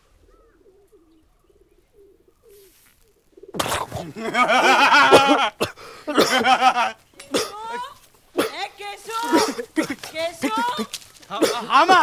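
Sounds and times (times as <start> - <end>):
pigeons cooing: 0.0 - 6.0
person coughing: 3.6 - 4.3, 5.0 - 6.5, 7.2 - 7.8, 8.4 - 8.6, 9.2 - 11.8
loud laughter: 3.8 - 7.9.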